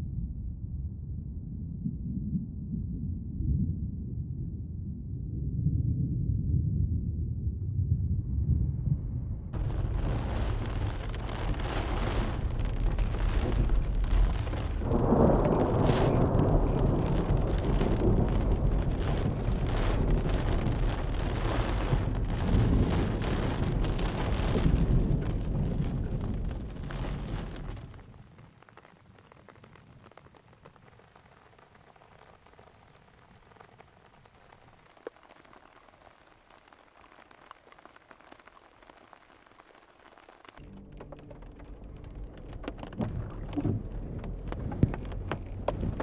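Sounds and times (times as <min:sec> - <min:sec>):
thunder rumbling: 0:05.2 - 0:30.7, 0:40.6 - 0:46.0
light rain hiss: 0:09.5 - 0:46.0
heavy rain pouring: 0:09.6 - 0:46.0.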